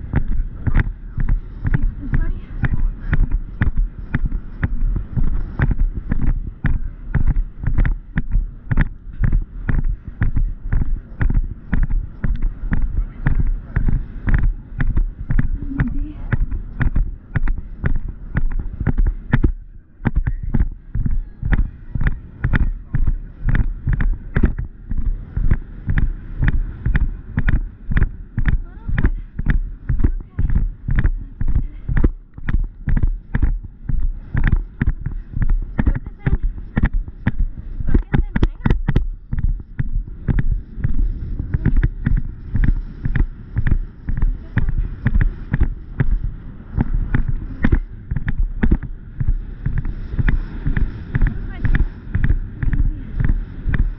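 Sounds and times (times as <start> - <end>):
horse hoofbeats cantering on grass: 0.0 - 53.9
wind on microphone: 0.0 - 53.9.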